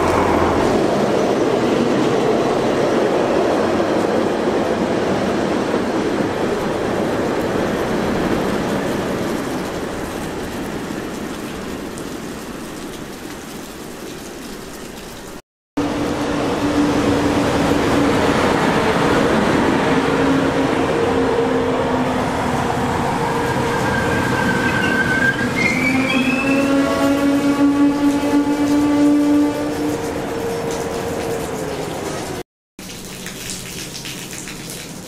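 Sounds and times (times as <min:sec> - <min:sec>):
freight train rolling over rails: 0:00.0 - 0:11.9, 0:15.8 - 0:32.4
passenger train rolling with low hum: 0:00.0 - 0:13.2, 0:15.8 - 0:32.4
train brakes squealing: 0:23.2 - 0:28.3.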